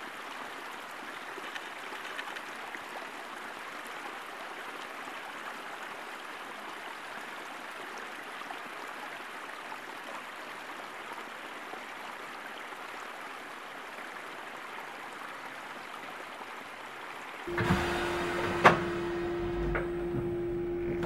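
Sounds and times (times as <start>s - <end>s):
steady hiss from railway car: 17.5s - 21.0s.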